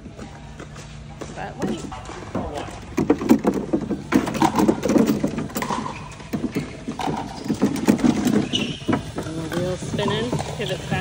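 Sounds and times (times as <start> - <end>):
plastic balls clattering into hopper: 2.9 - 10.4.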